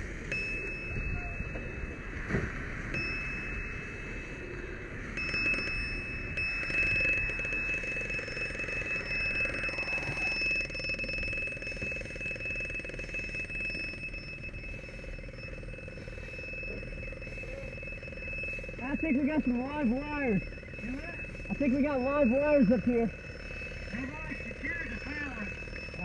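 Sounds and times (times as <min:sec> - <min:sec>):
high-pitched electronic alarm tone: 0:00.0 - 0:26.0.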